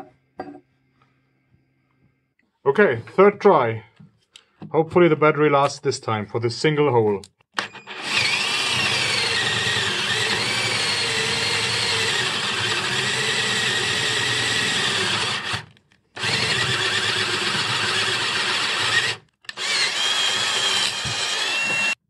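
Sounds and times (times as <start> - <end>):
cordless drill drilling wood: 7.6 - 22.0.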